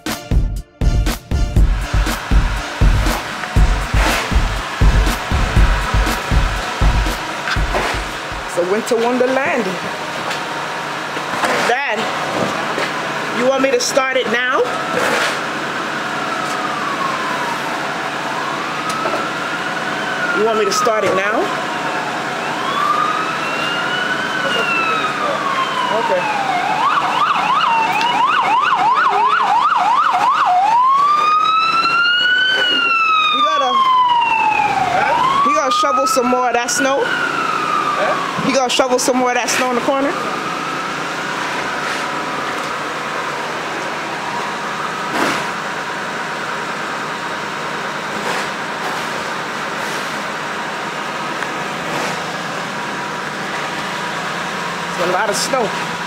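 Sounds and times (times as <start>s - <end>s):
steady background noise: 1.6s - 35.6s
emergency vehicle siren: 1.7s - 56.0s
snow shovel scraping sidewalk: 3.1s - 4.6s, 7.4s - 9.4s, 14.9s - 15.5s, 41.8s - 42.2s, 45.2s - 45.6s, 48.1s - 50.3s, 51.8s - 52.4s.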